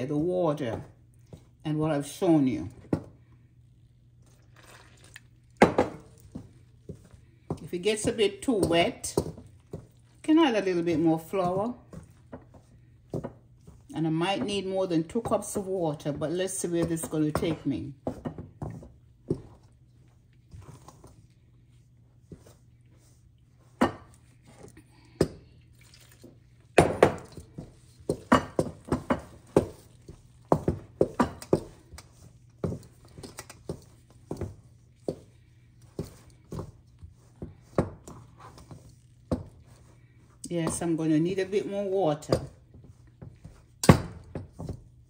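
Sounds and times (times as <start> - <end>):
spoon knocking and scraping bowl: 5.5 - 19.8, 23.6 - 44.9.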